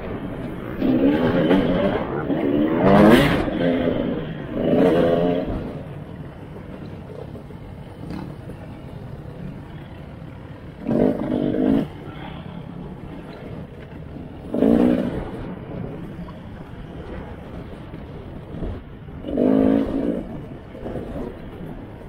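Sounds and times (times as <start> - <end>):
riding noise: 0.0 - 22.0
dirt bike engine revving: 0.5 - 6.9, 7.5 - 12.5, 14.4 - 15.5, 19.2 - 20.5.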